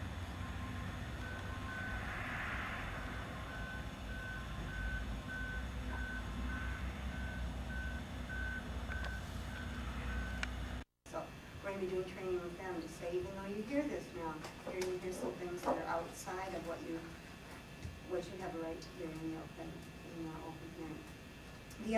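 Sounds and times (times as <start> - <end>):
low engine rumble: 0.0 - 10.9
reversing alarm beeping: 0.2 - 10.5.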